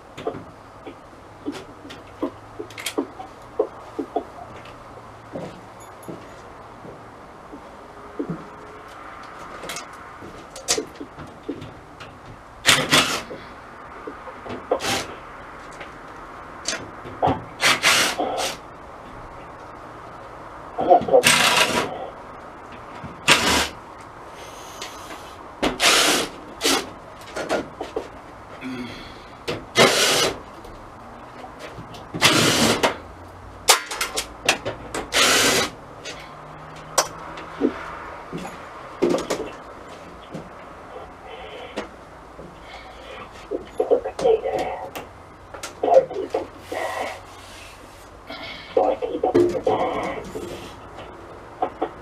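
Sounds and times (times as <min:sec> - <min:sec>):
cordless drill driving screws: 0:23.3 - 0:23.7, 0:25.8 - 0:26.8, 0:29.8 - 0:30.4, 0:32.2 - 0:32.9, 0:35.1 - 0:35.7.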